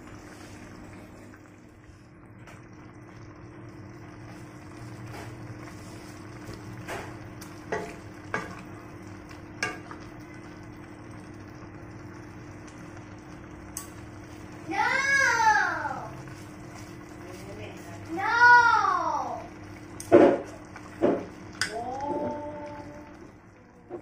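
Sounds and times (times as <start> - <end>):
utensils tapping on pan: 6.8 - 8.6, 9.6 - 10.0, 20.0 - 21.8.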